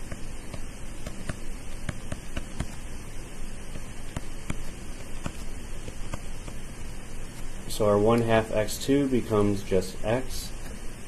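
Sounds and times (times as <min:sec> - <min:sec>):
stylus tapping on tablet screen: 0:00.0 - 0:02.8, 0:03.7 - 0:06.6
microphone hiss: 0:00.0 - 0:11.0.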